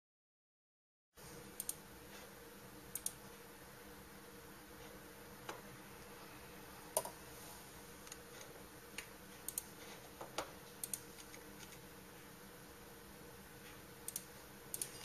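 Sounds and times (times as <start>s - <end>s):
faint steady hum: 1.2s - 15.0s
computer mouse clicks: 1.6s - 1.8s, 2.9s - 3.2s, 9.0s - 9.8s, 10.8s - 11.8s, 14.1s - 15.0s.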